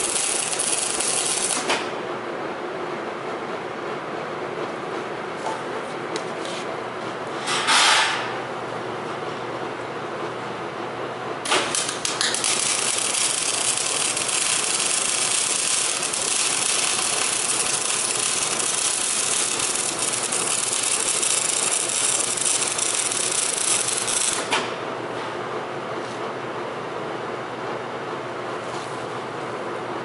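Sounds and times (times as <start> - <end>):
welding arc crackling hiss: 0.0 - 1.8, 11.4 - 24.6.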